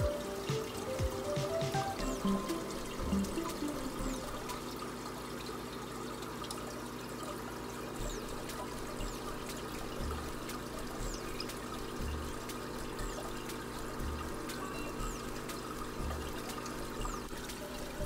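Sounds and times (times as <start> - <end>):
aquarium air bubbling: 0.0 - 18.0.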